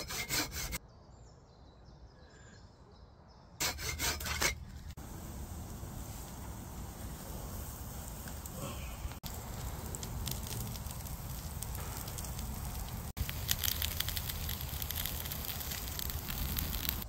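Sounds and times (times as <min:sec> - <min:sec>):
campfire crackling: 0:04.8 - 0:17.0
sausages sizzling in frying pan: 0:05.0 - 0:17.0.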